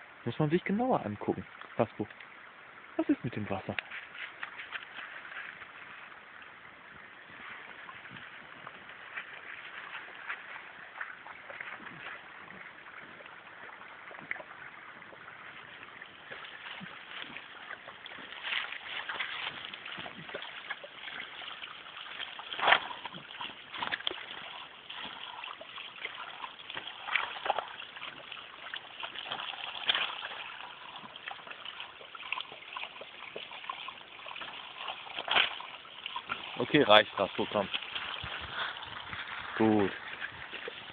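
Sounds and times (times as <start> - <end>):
water trickling from pipe: 0.0 - 40.9
loud water splash: 16.2 - 40.9.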